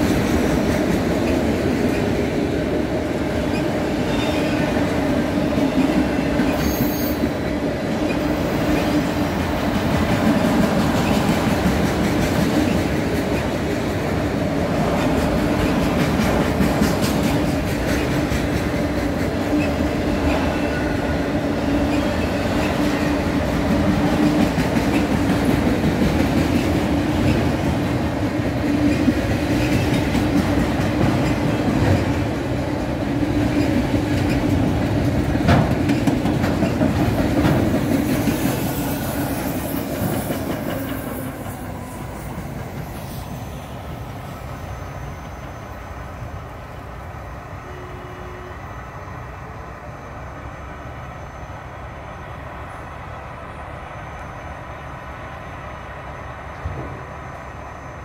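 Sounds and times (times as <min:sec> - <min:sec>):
freight train wheels clacking: 0:00.0 - 0:45.8.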